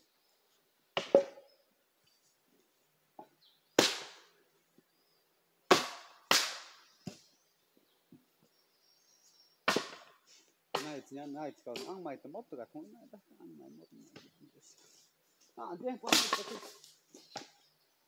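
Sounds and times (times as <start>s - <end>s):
blade chopping firewood: 3.8s - 4.2s, 5.7s - 7.2s, 9.6s - 10.1s, 10.7s - 11.0s, 16.1s - 17.6s.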